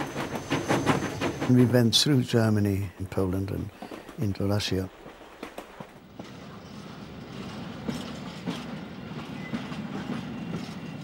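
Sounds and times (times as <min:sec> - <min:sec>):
train rumbling on rails: 0:00.0 - 0:11.0
wheel clacks over rail joints: 0:00.0 - 0:11.0.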